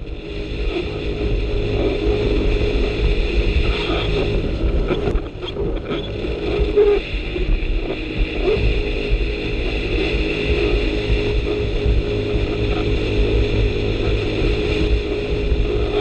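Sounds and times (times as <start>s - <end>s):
jet ski engine drone: 0.0s - 16.0s
water rushing under hull: 0.0s - 16.0s.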